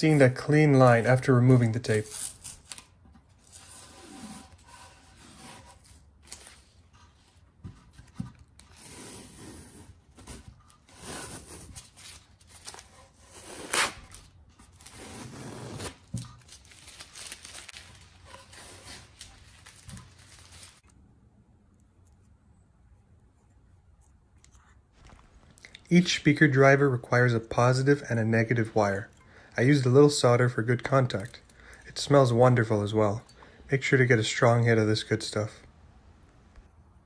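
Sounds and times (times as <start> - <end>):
masking tape tearing off wood: 1.6 - 6.8, 8.6 - 20.9.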